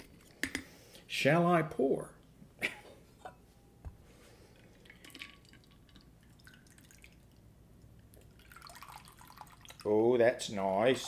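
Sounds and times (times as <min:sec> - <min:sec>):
liquid trickling into a glass: 0:04.6 - 0:07.4, 0:08.1 - 0:10.0.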